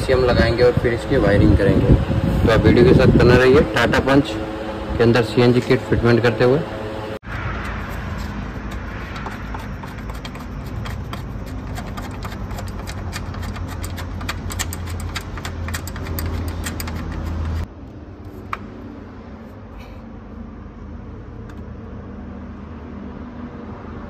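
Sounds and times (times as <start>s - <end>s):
steady low hum: 0.0s - 24.0s
hand tools clicking on metal: 8.7s - 17.7s.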